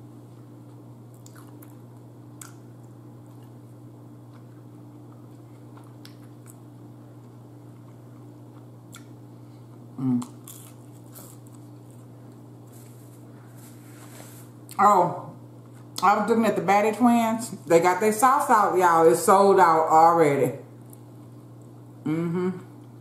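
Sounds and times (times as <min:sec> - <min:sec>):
low hum: 0:00.0 - 0:23.0
voiced hum: 0:00.0 - 0:23.0
person chewing: 0:00.6 - 0:14.8.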